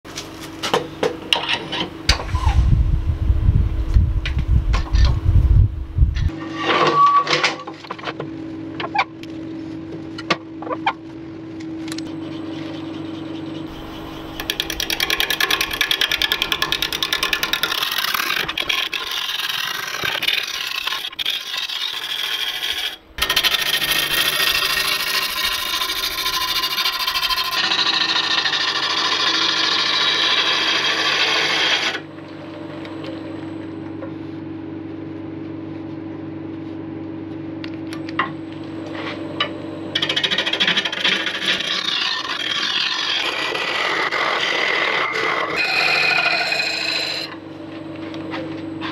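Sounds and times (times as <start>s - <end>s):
lathe motor hum: 13.6s - 33.6s, 39.9s - 47.4s
gouge cutting wood on lathe: 13.7s - 32.0s, 40.0s - 47.4s.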